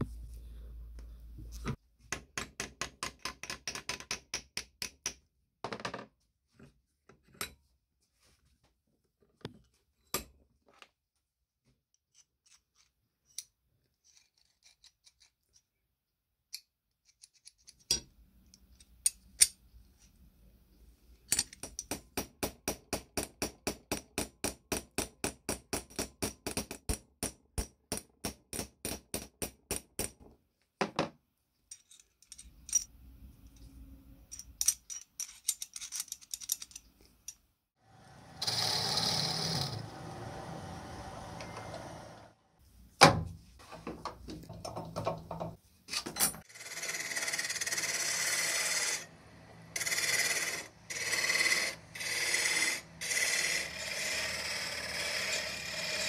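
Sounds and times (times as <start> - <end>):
lathe running: 37.9 - 42.4, 46.6 - 56.0.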